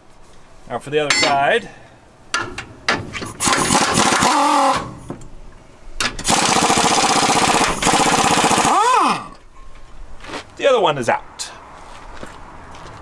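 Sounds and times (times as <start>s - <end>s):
air tool hammering on steel: 3.4s - 4.4s.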